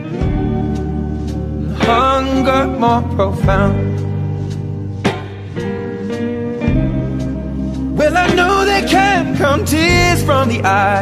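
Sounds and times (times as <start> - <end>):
guitar: 0.0 - 11.0
man singing: 1.6 - 4.0, 8.0 - 11.0.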